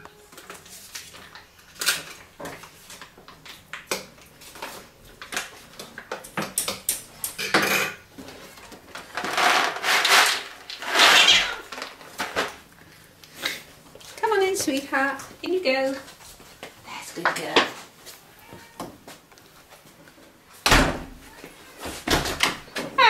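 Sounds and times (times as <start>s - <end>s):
rattling and scraping: 9.1s - 12.6s.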